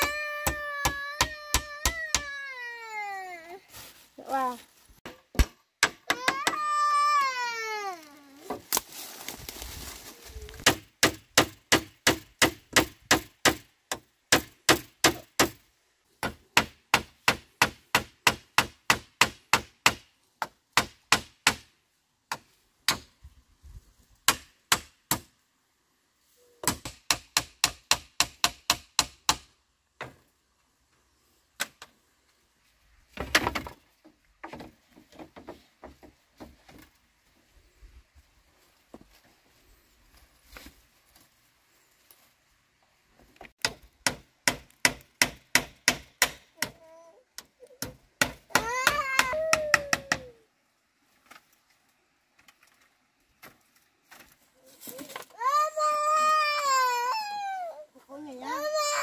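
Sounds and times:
child wailing: 0.0s - 3.7s, 6.1s - 8.5s, 46.6s - 47.8s, 48.5s - 50.4s, 54.8s - 59.0s.

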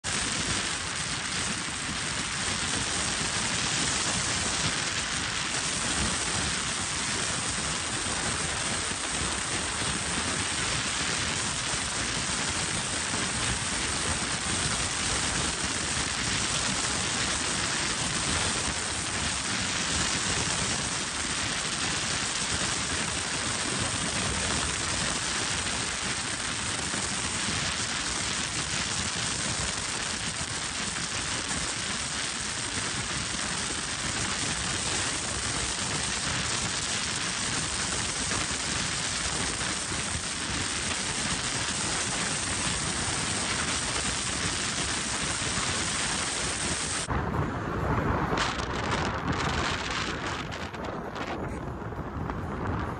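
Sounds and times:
wind rushing past car: 45.0s - 52.9s.

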